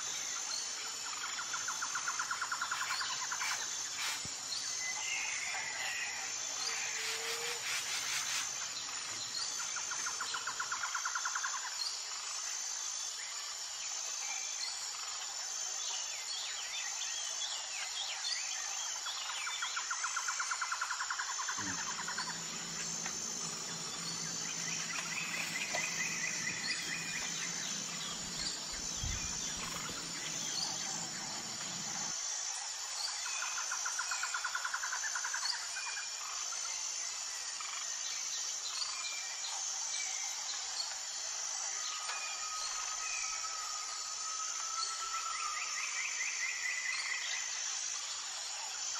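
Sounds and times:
insects chirring: 0.0 - 17.5, 18.4 - 48.9
buzzy insect trills: 0.0 - 48.9
bird chirps: 21.6 - 32.1
low steady hum: 21.6 - 32.1.

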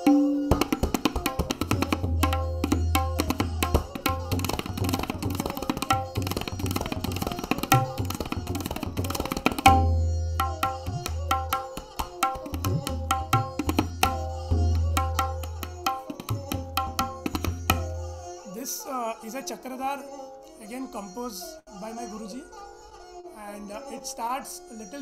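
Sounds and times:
rapid tabla strokes: 0.0 - 18.1.

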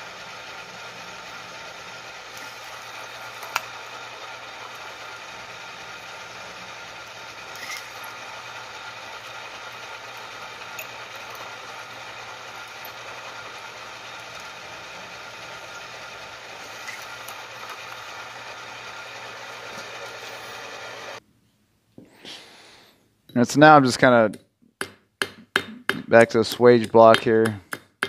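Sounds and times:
drill press drilling sheet steel: 0.0 - 21.2.

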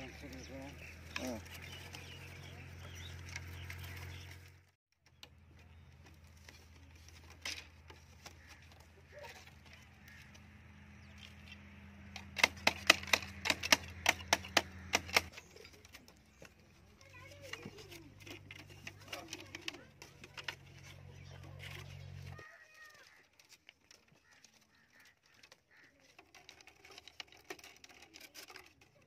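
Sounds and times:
bamboo sticks clacking: 5.2 - 10.5, 11.1 - 29.0.

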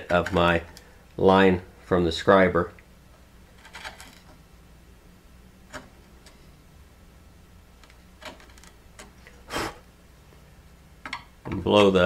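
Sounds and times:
gouge ticking and scraping wood: 7.8 - 9.3.

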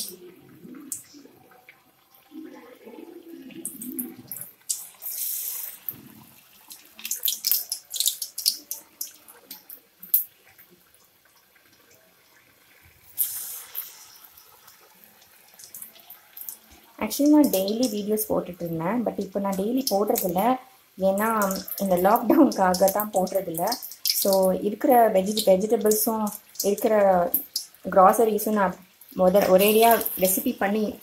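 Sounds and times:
wet squelching of batter: 0.0 - 27.9
batter frying in hot oil: 0.0 - 31.0.

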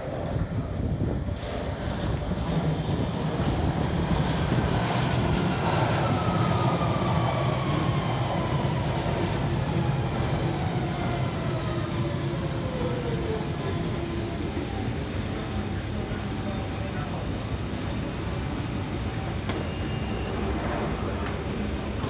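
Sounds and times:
train braking: 16.3 - 21.6.

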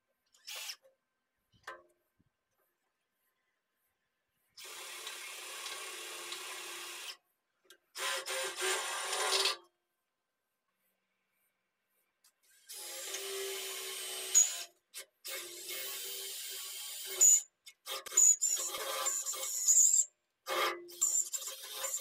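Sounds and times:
cordless drill boring into steel: 0.4 - 0.8, 4.6 - 7.2, 8.0 - 9.6, 12.5 - 14.7, 15.3 - 17.5, 18.1 - 20.0, 20.9 - 22.0.

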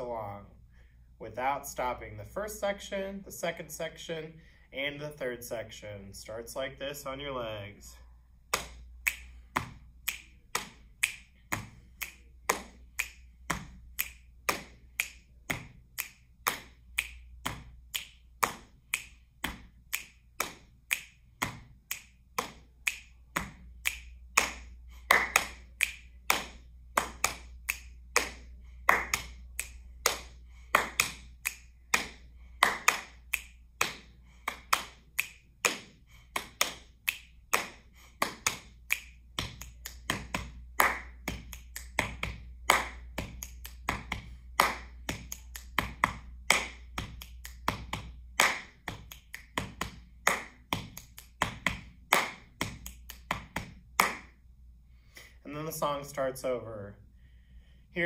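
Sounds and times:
finger snaps: 8.5 - 54.4
hand pats on thighs and chest: 8.5 - 54.4.

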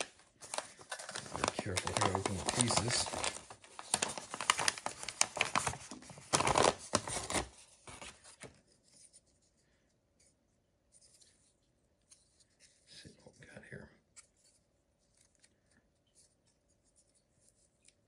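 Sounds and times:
paper crinkling and rustling: 0.0 - 9.4, 14.2 - 18.0.

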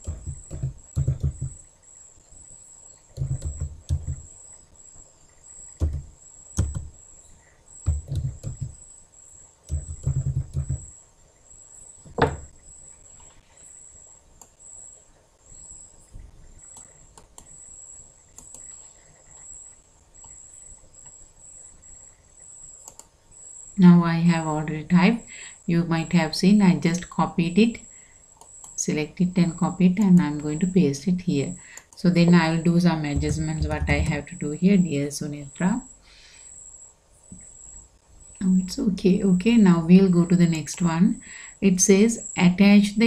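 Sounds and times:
typing on keyboard: 0.0 - 1.6, 3.2 - 4.2, 5.8 - 6.9, 7.8 - 8.8, 9.7 - 10.9
faint clicks: 14.4 - 14.6, 18.3 - 20.4, 22.8 - 23.1, 31.7 - 32.0.

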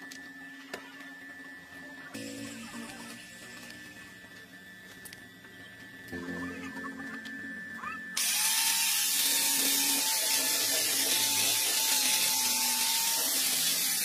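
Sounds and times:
angle grinder on steel pipe: 2.2 - 4.3, 7.3 - 14.0.

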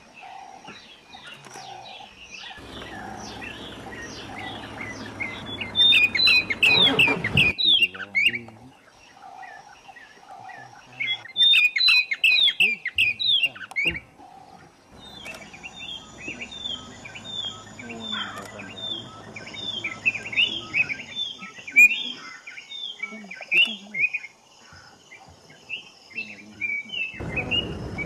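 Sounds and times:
other bird calls: 0.2 - 28.0
bird chirping high and falling: 2.6 - 8.3.

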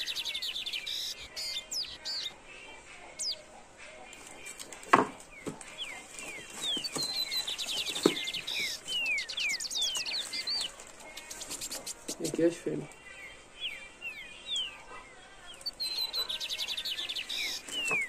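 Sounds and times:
songbirds chirping and whistling: 0.0 - 18.0.

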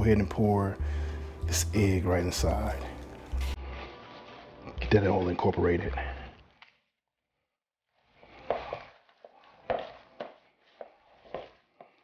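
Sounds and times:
whisk squelching through dough: 3.3 - 4.7, 8.1 - 12.0.

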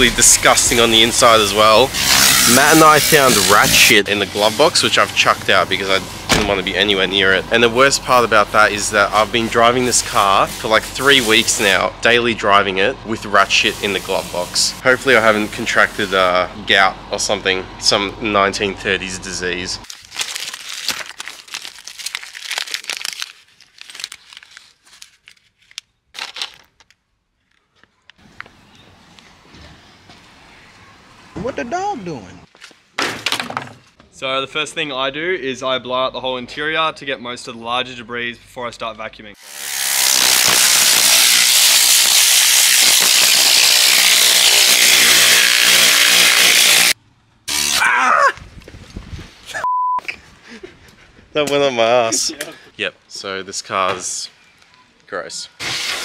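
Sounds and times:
paper crumpling: 19.9 - 27.9.

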